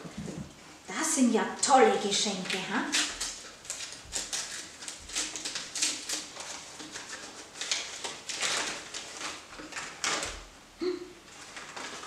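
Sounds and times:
wrapping paper rustling: 0:02.0 - 0:10.5, 0:11.3 - 0:12.0.

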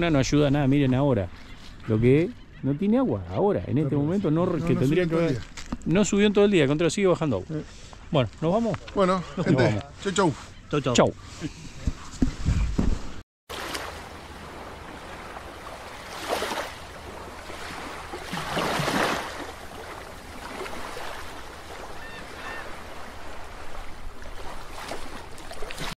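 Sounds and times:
underwater watery rush: 0:13.5 - 0:26.0.

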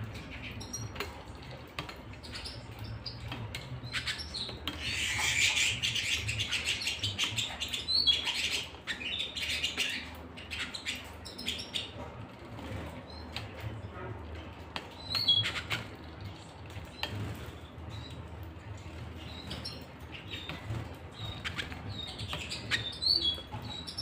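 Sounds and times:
canaries chirping: 0:00.0 - 0:24.0
fast trilled bird song: 0:19.2 - 0:24.0.

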